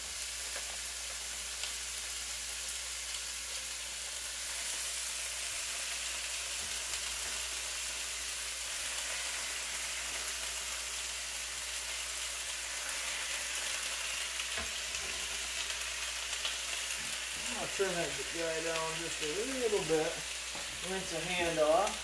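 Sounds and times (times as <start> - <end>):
meat sizzling in a pan: 0.0 - 22.0.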